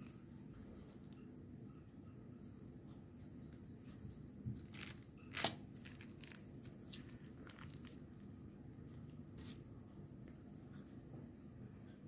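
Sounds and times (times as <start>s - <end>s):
cookie dough squishing: 3.8s - 9.7s
plastic piping bag crinkling: 4.6s - 8.1s.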